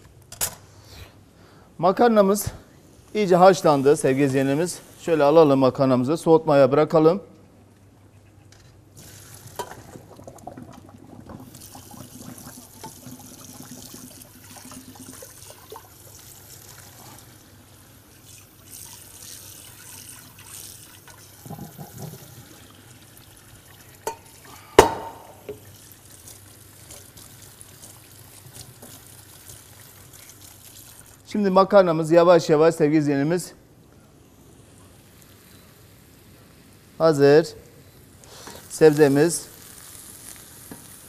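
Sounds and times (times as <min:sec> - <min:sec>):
water pouring into sink: 0:09.0 - 0:24.6.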